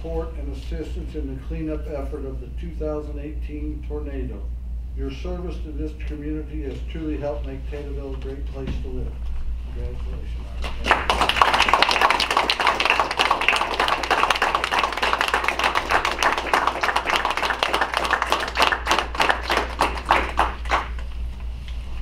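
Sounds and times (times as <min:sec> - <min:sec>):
small group applauding: 0:10.6 - 0:21.2.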